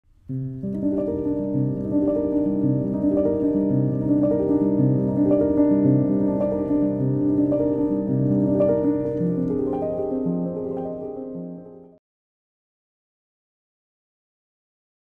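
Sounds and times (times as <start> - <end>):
intro music with held notes: 0.3 - 12.0.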